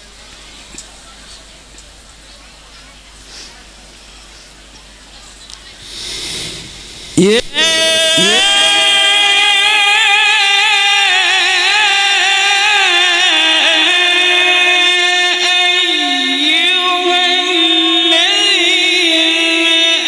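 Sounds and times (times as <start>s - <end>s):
man chanting melodic recitation: 7.1s - 20.0s.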